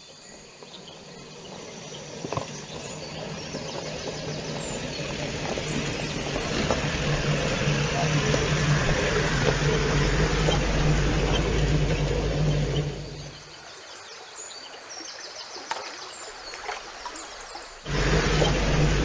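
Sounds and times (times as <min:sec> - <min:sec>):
birds chirping: 0:00.0 - 0:19.0
loud low humming drone: 0:00.8 - 0:13.5, 0:17.9 - 0:19.0.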